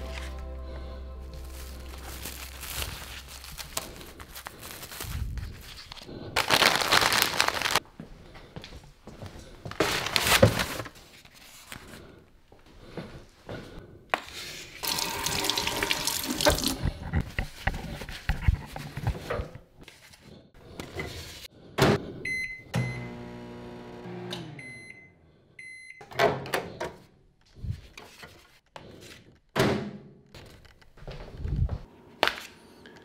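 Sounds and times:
faucet running: 14.8 - 16.8
microwave keypad beeps: 22.3 - 23.1, 24.6 - 26.0
microwave hum: 22.7 - 24.6.

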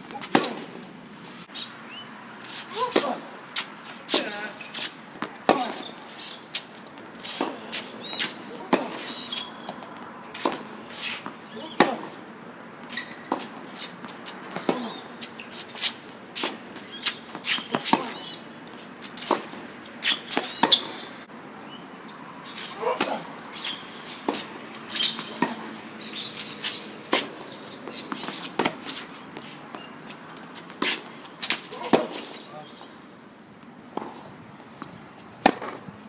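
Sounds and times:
racquets striking tennis ball: 0.0 - 0.9, 2.7 - 21.3, 22.5 - 33.0, 33.9 - 36.0
players' footsteps: 3.5 - 21.1, 22.8 - 33.0.

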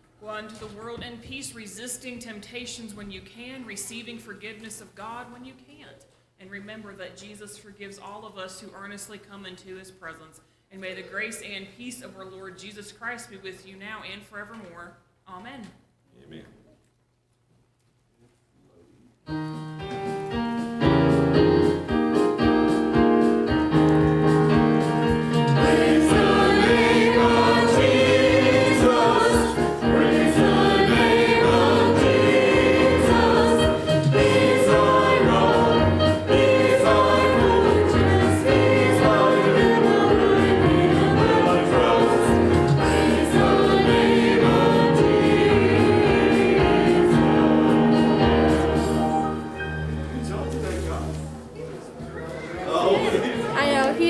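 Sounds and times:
choir singing gospel music: 20.8 - 50.4.

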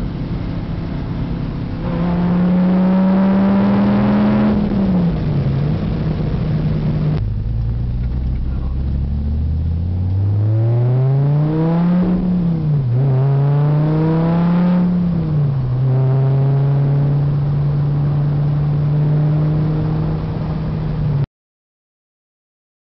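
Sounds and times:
car engine accelerating: 0.0 - 21.3.

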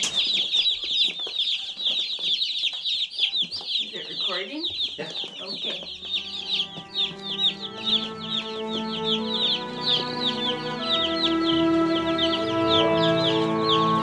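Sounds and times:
chicks peeping: 0.0 - 14.0
background music with held notes: 5.8 - 14.0.

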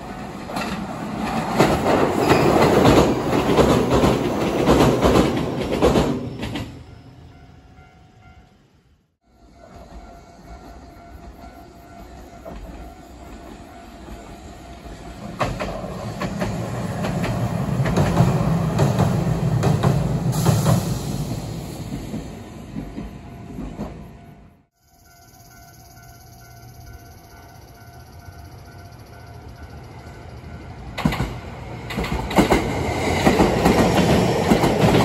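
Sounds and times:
wheels clacking over rail joints: 0.0 - 6.9, 11.1 - 20.8, 30.8 - 35.0
tram rumbling over bridge: 0.0 - 35.0.

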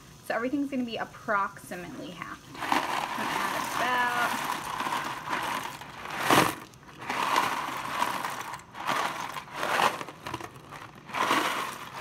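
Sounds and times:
dry pasta rattling in box: 2.5 - 12.0
cardboard box rustling: 2.6 - 12.0.

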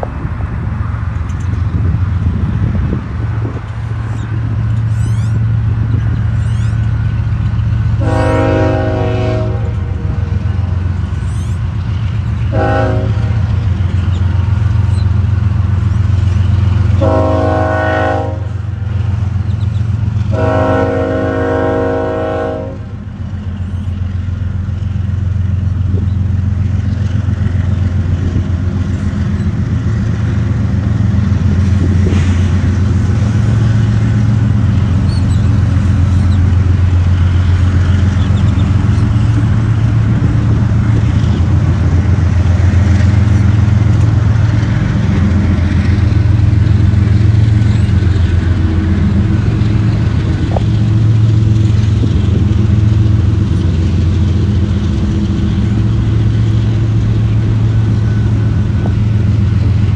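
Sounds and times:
locomotive low rumble: 0.0 - 59.9
locomotive air horn blasts: 8.0 - 10.4, 12.5 - 13.4, 17.0 - 18.7, 20.3 - 23.0.

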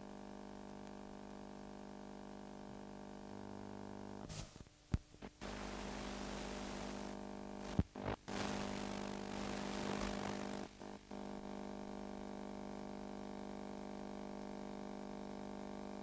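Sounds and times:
tape playback hum and hiss: 0.0 - 14.0.

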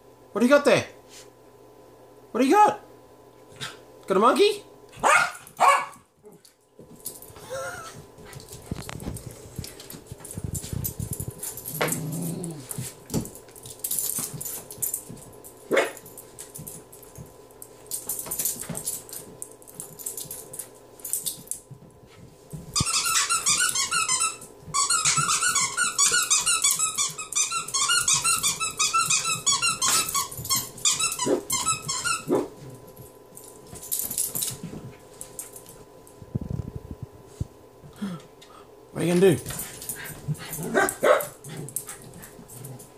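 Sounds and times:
dog scuffling: 5.0 - 36.3
squeaky toy squeaking: 22.8 - 32.3.

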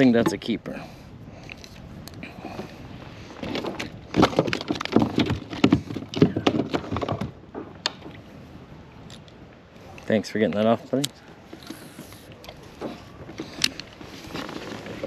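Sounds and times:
fish thrashing against kayak: 3.3 - 8.3.

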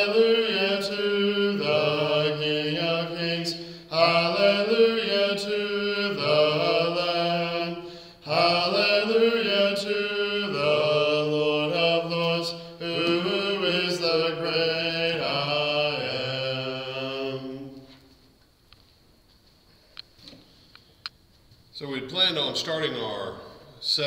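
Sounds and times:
man singing unaccompanied: 0.0 - 17.7.

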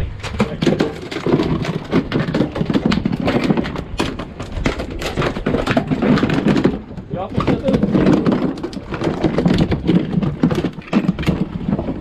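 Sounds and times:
knocks and thuds on boat: 0.0 - 12.0.

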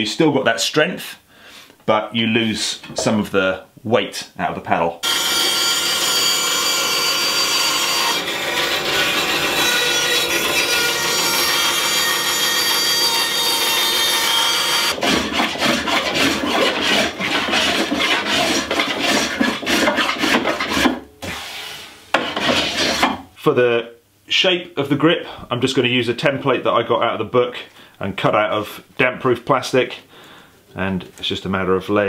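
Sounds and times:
bandsaw cutting wood: 5.0 - 21.5, 22.2 - 23.2
rasp shaping wood: 7.8 - 23.2.

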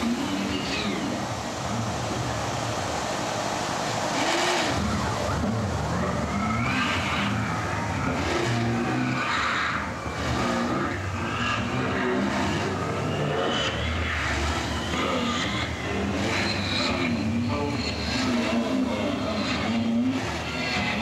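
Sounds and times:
harsh electronic noise music: 0.0 - 21.0.

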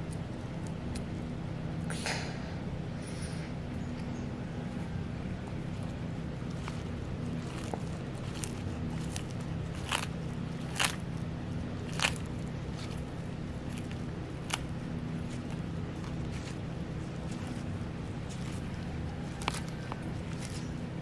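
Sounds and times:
tortoise crunching lettuce: 0.0 - 2.0, 4.2 - 21.0
steady low hum: 0.0 - 21.0.

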